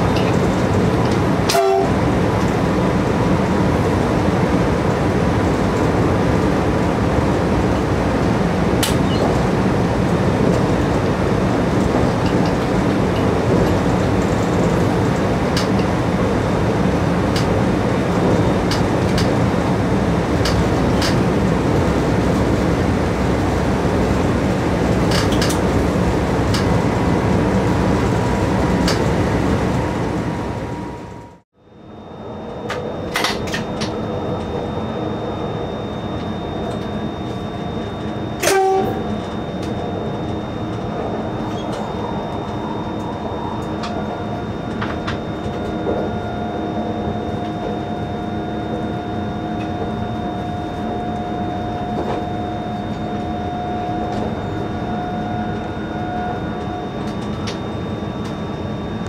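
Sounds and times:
train wheels rumbling on rails: 0.0 - 31.4, 32.4 - 59.0
steady whine: 0.0 - 59.0
two-tone horn blast: 1.5 - 2.1, 38.4 - 39.2.

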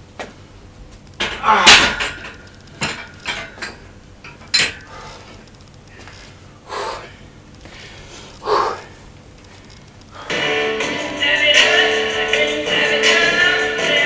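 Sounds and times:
man breathing hard: 4.8 - 9.0, 10.1 - 10.4.

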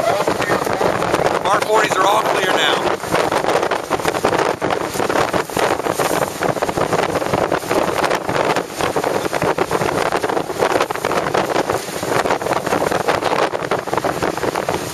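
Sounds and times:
boat engine: 0.0 - 14.9
hull through choppy water: 0.0 - 14.9
wind buffeting microphone: 0.0 - 14.9.

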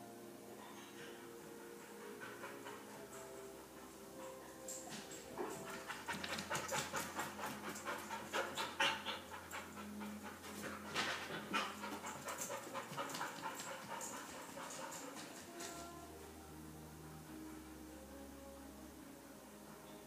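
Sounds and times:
dog panting: 1.0 - 15.8.

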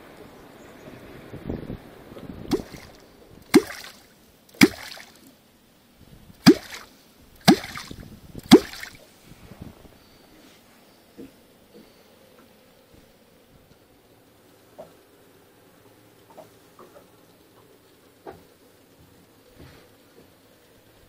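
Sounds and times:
wooden clonk plopping into water: 2.5 - 4.0, 4.6 - 5.2, 6.4 - 9.0.

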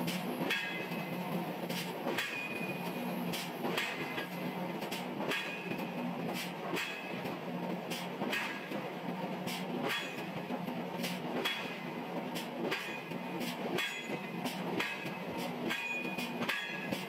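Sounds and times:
metallic clanks and knocks: 4.9 - 5.8, 11.4 - 11.8, 12.7 - 17.0.

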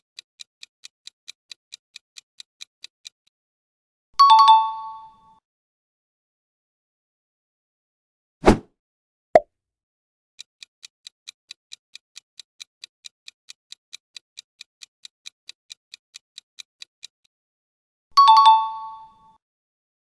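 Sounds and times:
clock-like ticking: 0.0 - 3.2, 10.4 - 17.3.

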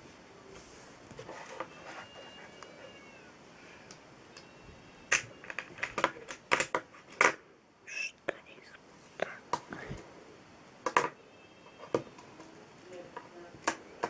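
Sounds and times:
faint high-pitched tones: 1.4 - 6.1, 7.8 - 14.0.

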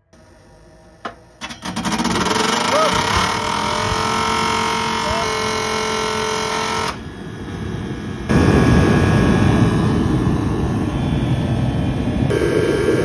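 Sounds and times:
heater fan motor whine: 0.0 - 13.0
burner flame rushing: 7.0 - 13.0.

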